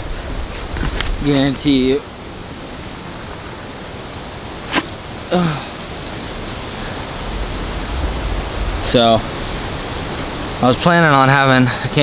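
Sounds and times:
wind buffeting microphone: 6.2 - 11.5.

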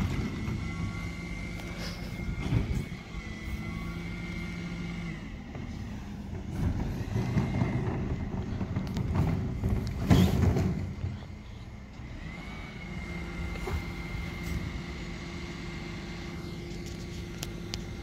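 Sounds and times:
high-pitched whine: 0.0 - 6.1
refuse lorry engine running: 0.0 - 18.0.

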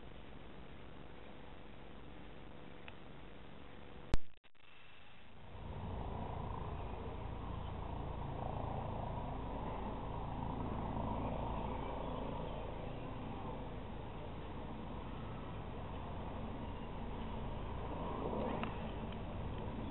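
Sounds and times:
distant helicopter drone: 5.0 - 19.9.

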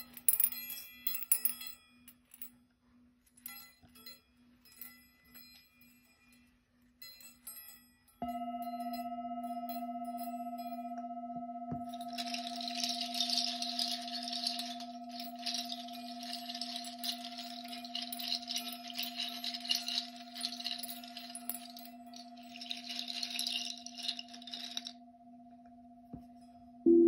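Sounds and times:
bell ringing low tone: 8.2 - 27.0
shaker rattling: 11.8 - 25.0.

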